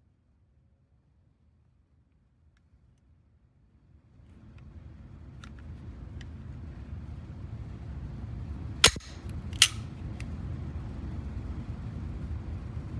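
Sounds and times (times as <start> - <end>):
low background rumble: 0.0 - 12.9.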